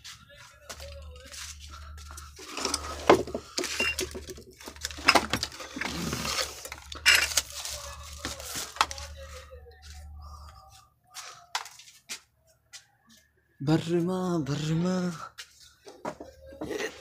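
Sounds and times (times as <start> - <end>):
household things knocking and clinking: 2.5 - 7.5.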